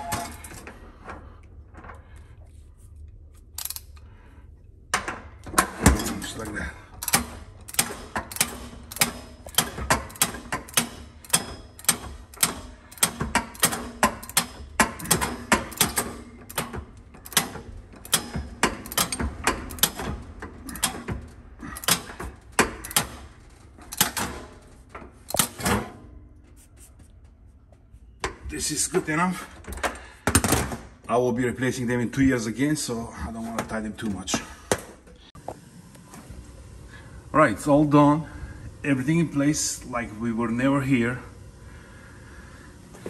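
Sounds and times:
ratchet wrench clicking: 3.6 - 4.0, 7.0 - 16.6.

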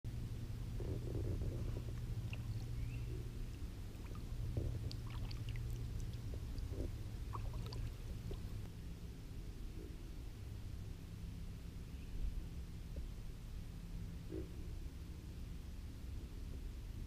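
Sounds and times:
steady low hum: 0.1 - 17.0
water dripping and trickling: 3.4 - 8.7.

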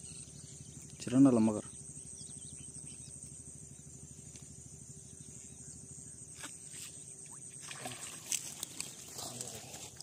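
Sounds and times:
fish splashing water: 7.3 - 9.1.

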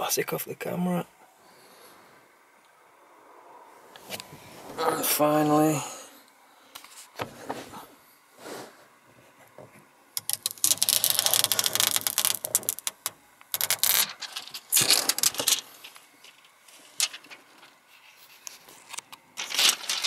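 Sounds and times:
plastic film peeling crackle: 10.2 - 17.8, 18.4 - 20.0.

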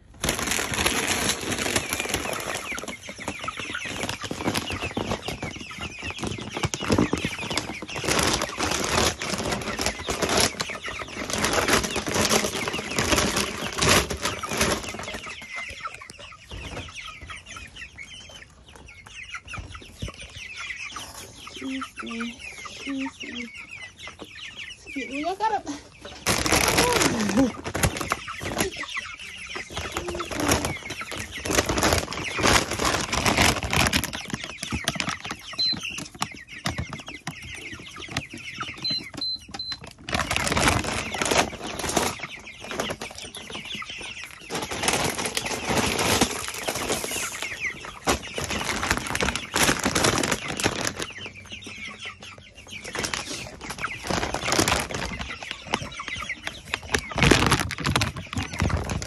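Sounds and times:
chickens flapping wings: 0.0 - 15.4, 26.2 - 28.9, 29.6 - 51.3, 52.9 - 59.0
chickens clucking: 0.0 - 59.0.

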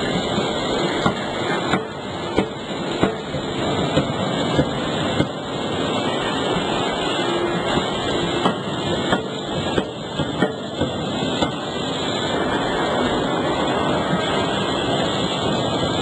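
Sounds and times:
sharp metallic knocks: 1.0 - 5.4, 8.4 - 11.6.

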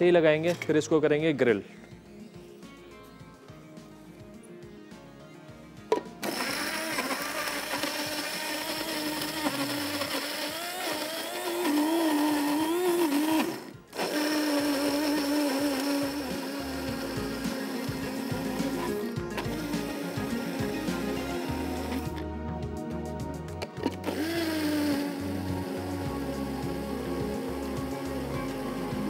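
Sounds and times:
blender motor whirring: 6.2 - 22.2, 23.6 - 29.0.

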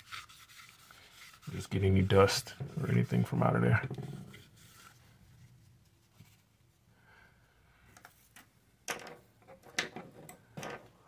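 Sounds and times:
short rustling scrapes: 0.0 - 6.6.

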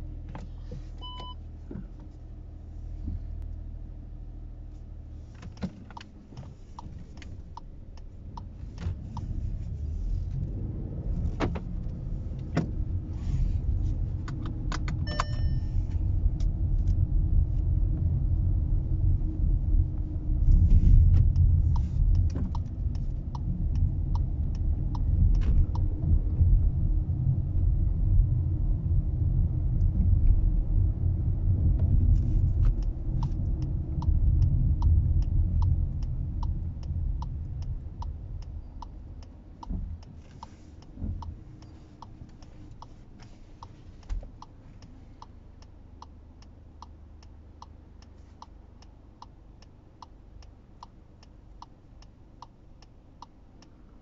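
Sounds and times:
car engine idling and driving: 0.0 - 54.0
road rumble: 0.0 - 54.0
short electronic chime: 15.1 - 15.8.

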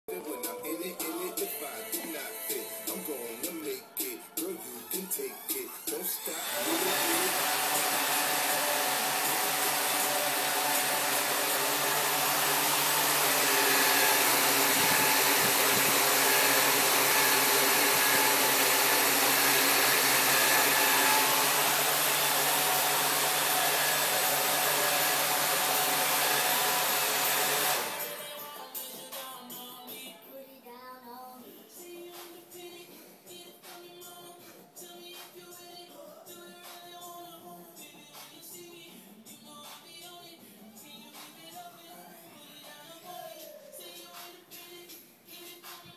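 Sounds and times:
quadcopter motors whirring: 6.3 - 27.9.

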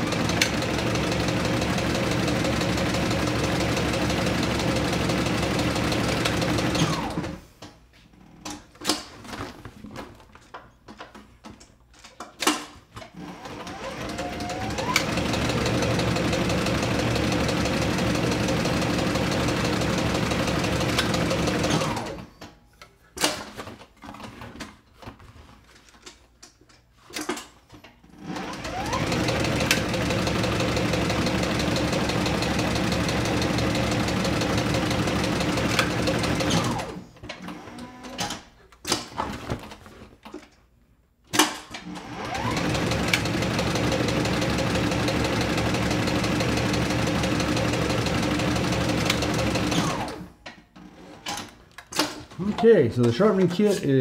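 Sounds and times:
sewing machine stitching leather: 0.0 - 7.4, 12.5 - 22.4, 28.0 - 39.9, 41.3 - 52.5.

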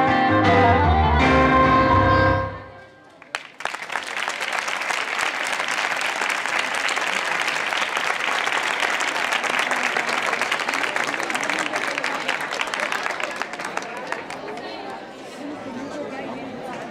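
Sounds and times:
music: 0.0 - 2.8
audience applause: 3.1 - 15.0.

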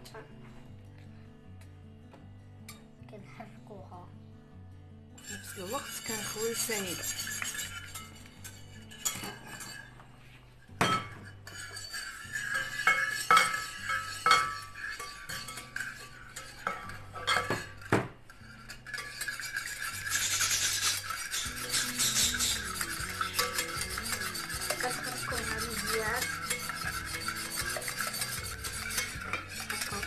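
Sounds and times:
whisk beating in a bowl: 5.2 - 9.9, 10.8 - 30.0
whisk clinking on bowl: 5.2 - 9.9, 10.8 - 30.0.

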